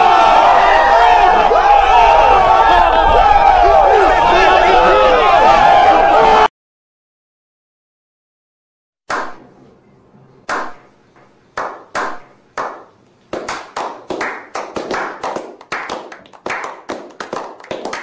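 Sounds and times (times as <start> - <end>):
people clapping: 11.6 - 18.0.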